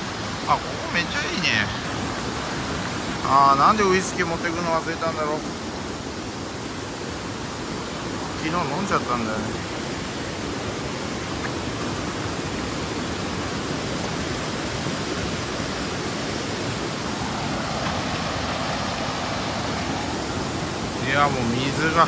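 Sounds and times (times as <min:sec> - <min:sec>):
river rushing over rapids: 0:00.0 - 0:22.0.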